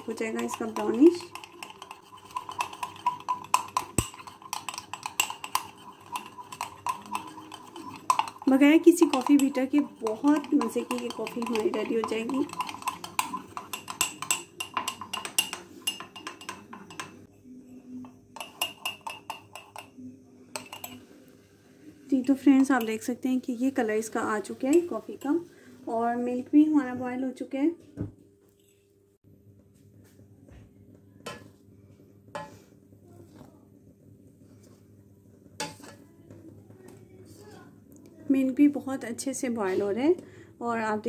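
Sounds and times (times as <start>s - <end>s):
spoon clinking in ceramic mug: 0.0s - 17.3s, 17.9s - 21.0s
ladle scraping a steel pot: 0.0s - 19.9s, 35.6s - 36.0s
sharp knocks on pot: 3.6s - 4.3s.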